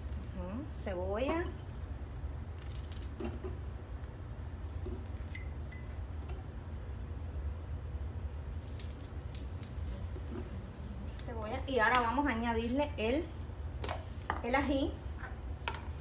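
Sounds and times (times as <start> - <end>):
steady low hum: 0.0 - 16.0
clink on glass jar: 5.3 - 5.9.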